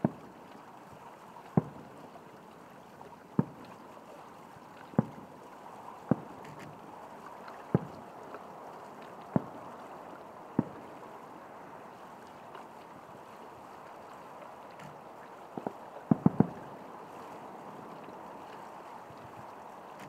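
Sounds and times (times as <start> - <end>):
steady background hiss: 0.0 - 20.0
distant firework booms: 16.1 - 16.7.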